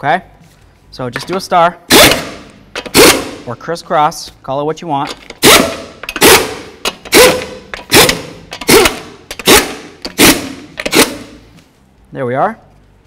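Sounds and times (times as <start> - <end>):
impact wrench bursts: 1.9 - 3.5, 5.1 - 11.5.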